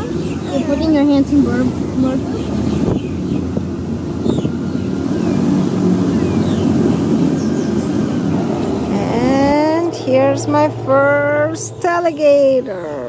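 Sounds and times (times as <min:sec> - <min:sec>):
airboat engine rumbling: 0:00.0 - 0:13.0
high-pitched bird chirps: 0:04.2 - 0:05.5.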